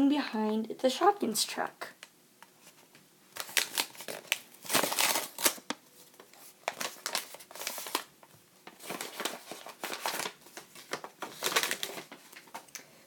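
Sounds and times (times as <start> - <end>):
paper envelope rustling: 2.6 - 12.7.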